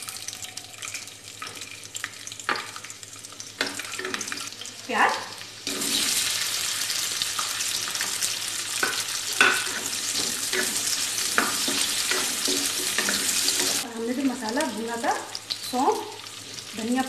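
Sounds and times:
onions sizzling in hot oil: 0:00.0 - 0:17.0
spatula scraping pan: 0:08.8 - 0:13.8.

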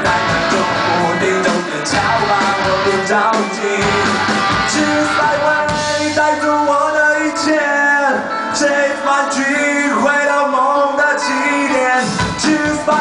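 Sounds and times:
electric guitar: 0:00.0 - 0:13.0
person singing: 0:00.0 - 0:13.0.

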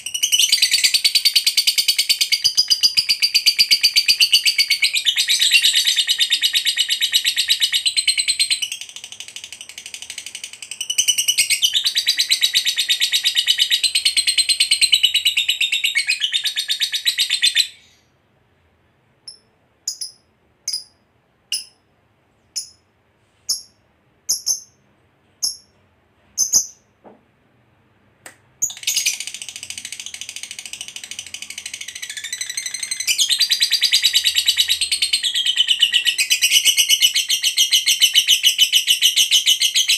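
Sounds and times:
lovebird chattering trill: 0:19.3 - 0:21.8, 0:22.5 - 0:22.8, 0:23.5 - 0:24.8, 0:26.4 - 0:26.8, 0:28.6 - 0:39.9.

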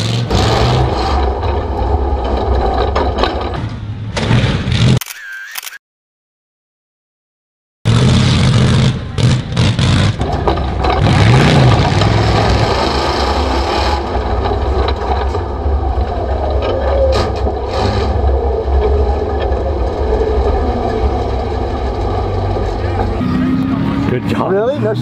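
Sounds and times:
truck engine revving hard: 0:00.0 - 0:02.8, 0:07.9 - 0:25.0.

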